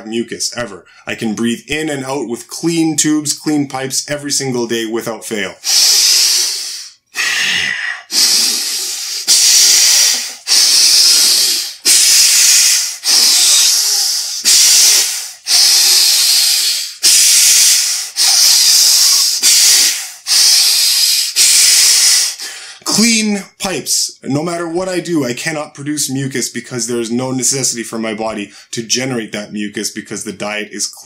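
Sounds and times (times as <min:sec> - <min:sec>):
man breathing through nose: 0:05.6 - 0:22.8.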